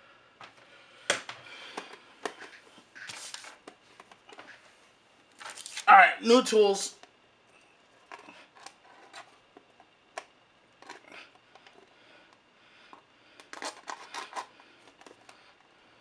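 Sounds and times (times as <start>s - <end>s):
clicks and scrapes on plastic packaging: 13.4s - 15.4s.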